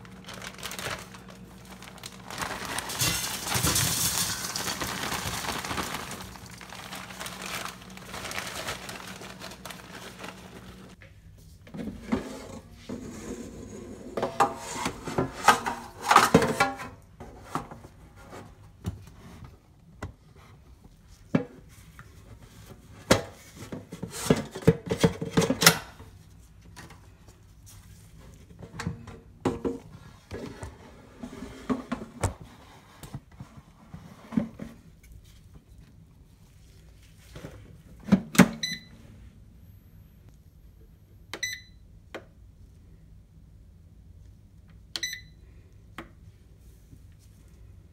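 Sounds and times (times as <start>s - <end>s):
metal and plastic clattering: 1.8s - 6.3s.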